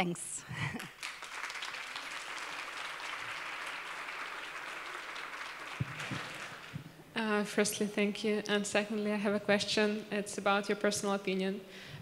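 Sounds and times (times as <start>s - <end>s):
audience applauding: 0.8s - 7.0s.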